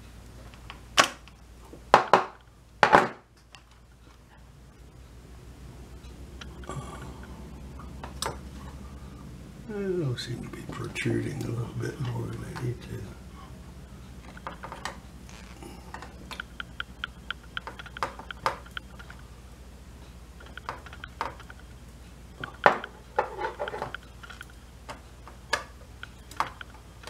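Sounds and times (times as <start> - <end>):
circuit board taps: 16.0 - 19.1.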